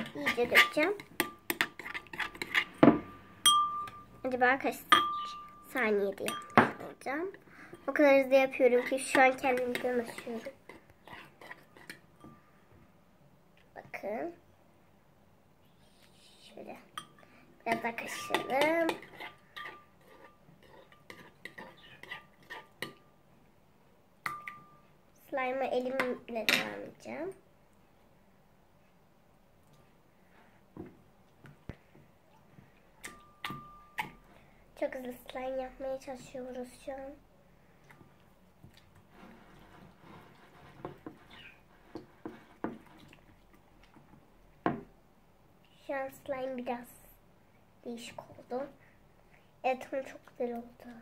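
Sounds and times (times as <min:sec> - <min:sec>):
spoon stirring slime: 0:00.0 - 0:12.4, 0:17.0 - 0:23.1, 0:37.7 - 0:44.2
spoon clinking against glass: 0:03.5 - 0:04.1, 0:04.9 - 0:06.7.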